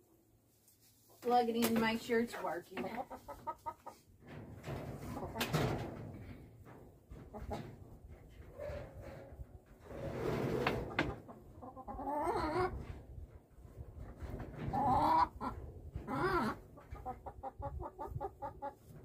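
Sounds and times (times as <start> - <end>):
chickens clucking: 2.8 - 4.2, 4.9 - 9.4, 10.6 - 13.0, 13.6 - 19.0.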